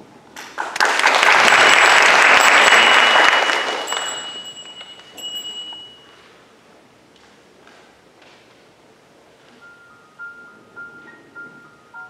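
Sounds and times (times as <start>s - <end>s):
audience applauding: 0.4s - 5.2s
faint high ringing tone: 2.3s - 6.6s, 9.6s - 12.0s.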